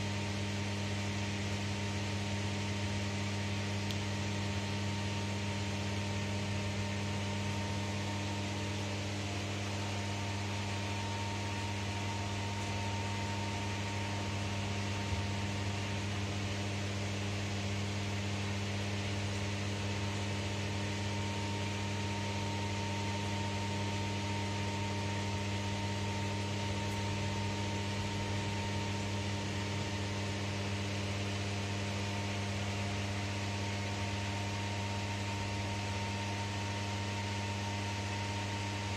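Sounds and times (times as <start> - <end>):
electrical hum with hiss: 0.0 - 38.9.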